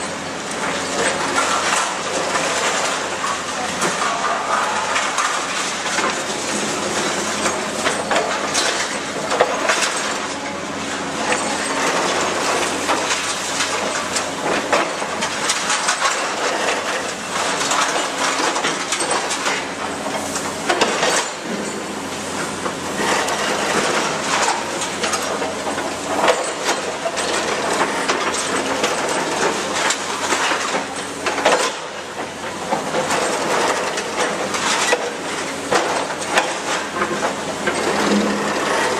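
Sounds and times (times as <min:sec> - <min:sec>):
hydraulic jaws crushing concrete: 0:11.2 - 0:21.9.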